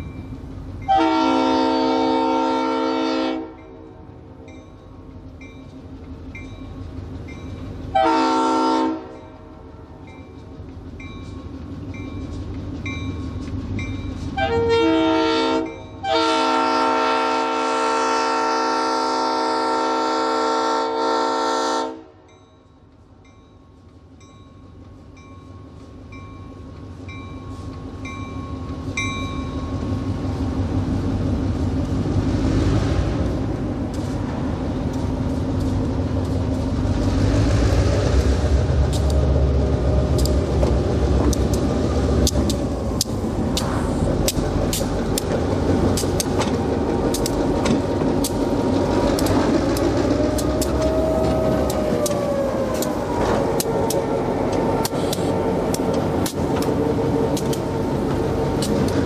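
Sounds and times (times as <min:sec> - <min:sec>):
crossing bell ringing: 0:00.0 - 0:01.1, 0:03.5 - 0:07.8, 0:09.1 - 0:14.6, 0:15.6 - 0:16.2, 0:22.2 - 0:30.0
diesel engine approaching: 0:00.0 - 0:19.5, 0:24.0 - 0:59.0
locomotive air horn: 0:00.9 - 0:03.6, 0:07.9 - 0:09.2, 0:14.4 - 0:22.2.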